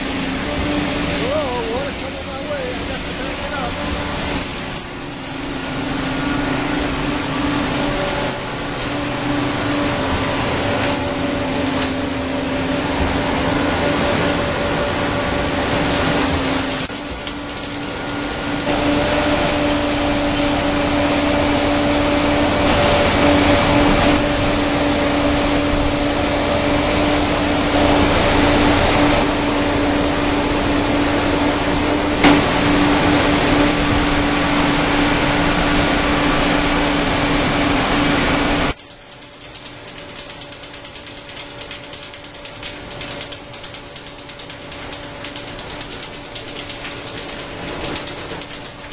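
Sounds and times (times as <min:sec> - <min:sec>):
suction blower droning: 0:00.0 - 0:38.8.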